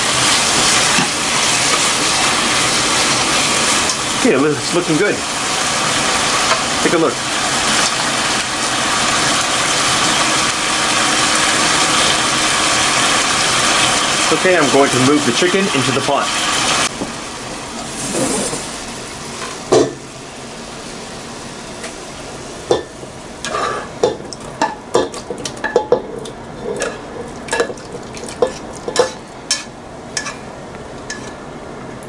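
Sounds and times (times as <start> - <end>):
short sizzle: 0.0 - 24.1
utensil scraping frying pan: 17.9 - 18.8, 22.7 - 30.5, 31.1 - 31.4.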